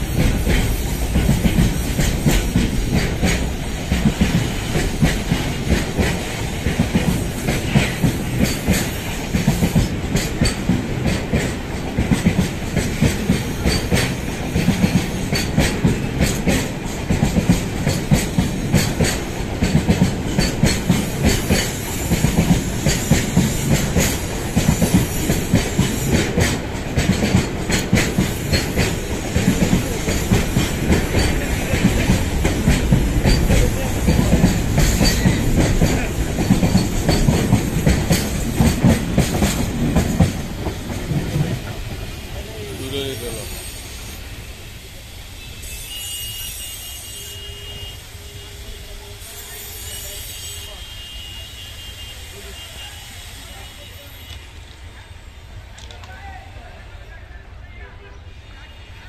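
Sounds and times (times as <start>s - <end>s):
train wheels clacking on rail joints: 0.0s - 44.2s
freight train rumble: 0.0s - 59.0s.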